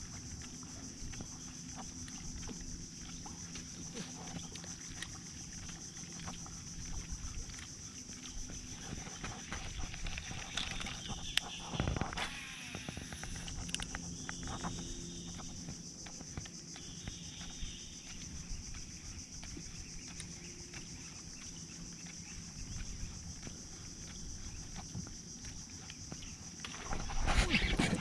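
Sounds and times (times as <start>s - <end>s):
high-pitched insect buzzing: 8.8s - 19.2s.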